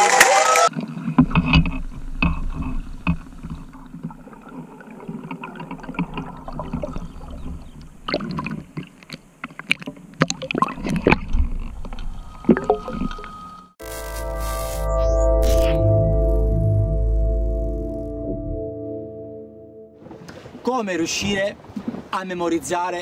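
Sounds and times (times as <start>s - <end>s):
underwater clicks and crackles: 0.7s - 13.4s
bubbling: 0.7s - 13.6s
underwater rumble: 0.8s - 9.4s, 10.0s - 13.8s.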